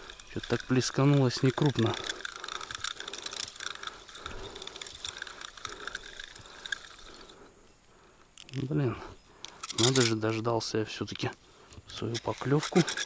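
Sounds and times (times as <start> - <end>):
fishing reel clicking: 0.0 - 7.4, 9.4 - 10.2, 11.9 - 13.0.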